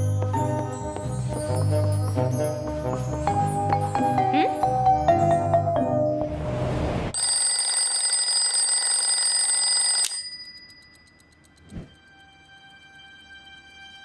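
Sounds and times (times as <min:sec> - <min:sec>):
alarm clock bell ringing: 0:07.1 - 0:11.5.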